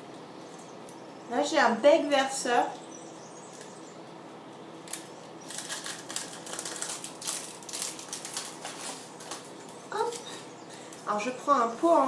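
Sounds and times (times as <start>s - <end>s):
plastic packaging crinkling: 4.8s - 11.0s.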